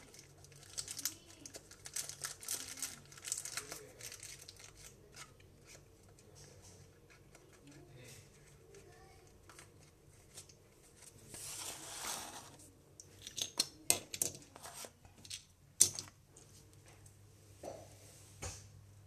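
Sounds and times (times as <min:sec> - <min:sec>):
cardboard scraping rustle: 0:11.1 - 0:12.7.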